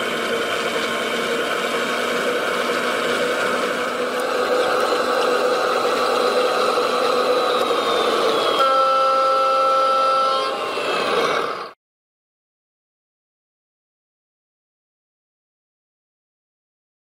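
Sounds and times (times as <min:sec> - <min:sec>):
model truck engine: 0:00.0 - 0:11.8
truck horn: 0:08.5 - 0:10.7.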